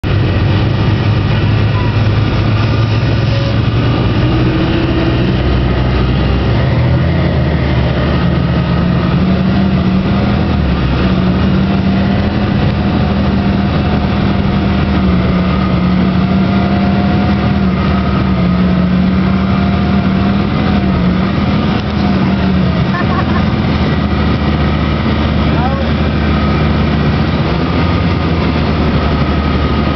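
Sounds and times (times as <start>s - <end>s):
off-road vehicle engine revving: 0.0s - 29.9s.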